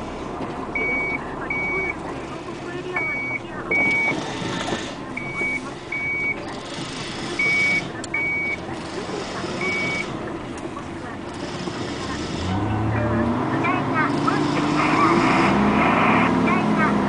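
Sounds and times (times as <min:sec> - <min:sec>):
diesel engine running: 0:00.0 - 0:17.0
reversing alarm beeps: 0:00.8 - 0:02.0, 0:02.9 - 0:04.2, 0:05.2 - 0:06.4, 0:07.4 - 0:08.6, 0:09.5 - 0:10.1.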